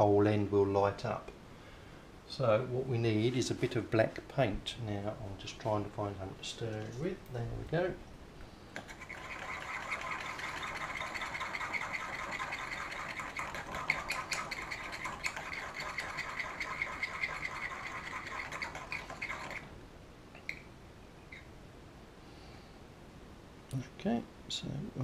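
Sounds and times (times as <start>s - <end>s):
paint being stirred: 8.8s - 19.8s.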